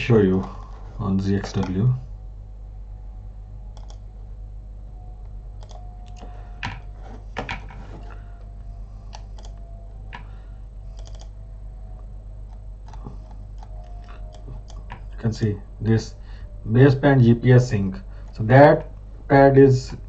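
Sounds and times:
steady low hum: 0:00.0 - 0:20.0
computer keyboard typing: 0:01.4 - 0:01.8, 0:03.8 - 0:04.0, 0:05.6 - 0:07.8, 0:09.1 - 0:10.3, 0:10.9 - 0:11.4, 0:12.5 - 0:15.4.

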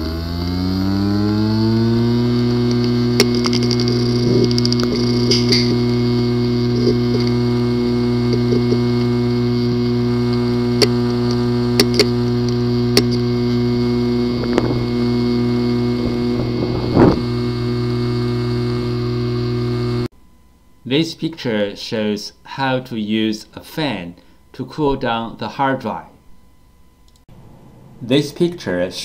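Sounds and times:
rising and falling whirs: 0:00.0 - 0:20.1
hard disk drive humming: 0:00.0 - 0:24.6
hard drive clicks: 0:02.1 - 0:20.1.

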